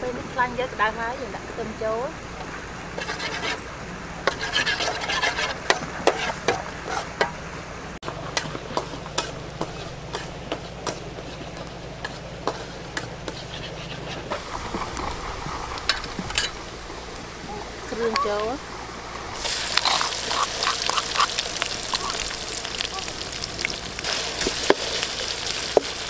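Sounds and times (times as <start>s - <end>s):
oil sizzling: 2.2s - 26.0s
metal spatula scraping wok: 3.0s - 3.6s, 4.2s - 7.4s, 8.2s - 16.6s, 19.4s - 21.3s.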